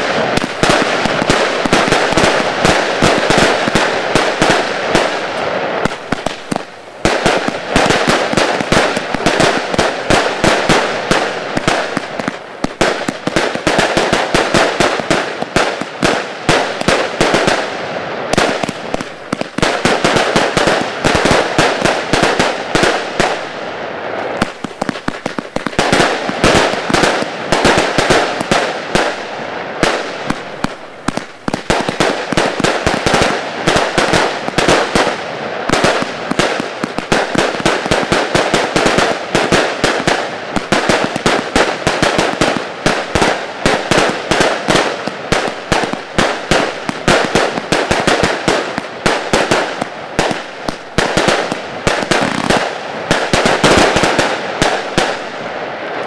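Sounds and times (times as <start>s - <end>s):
fireworks cake firing bangs: 0.0s - 23.6s, 24.2s - 55.5s.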